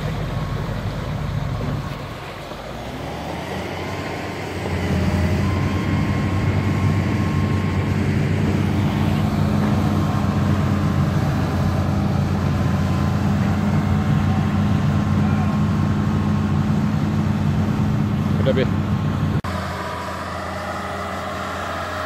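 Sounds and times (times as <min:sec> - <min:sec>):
diesel engine droning: 0:00.0 - 0:22.0.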